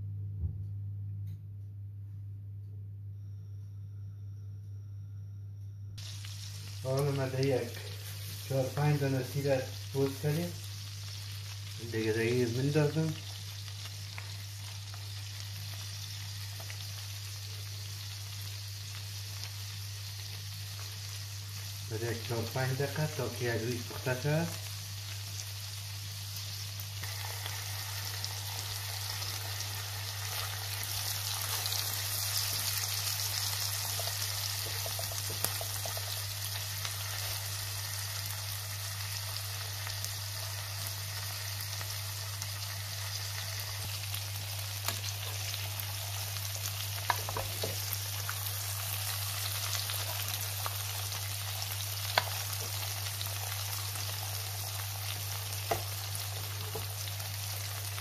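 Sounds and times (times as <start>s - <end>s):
low hum: 0.0s - 10.0s
meat sizzling in a pan: 6.0s - 58.0s.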